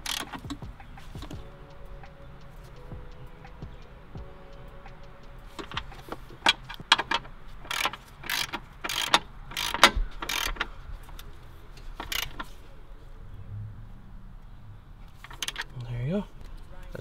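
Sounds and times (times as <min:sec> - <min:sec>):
ratchet wrench clicking: 0:00.0 - 0:01.4, 0:05.6 - 0:11.3, 0:12.0 - 0:12.5, 0:15.2 - 0:15.7.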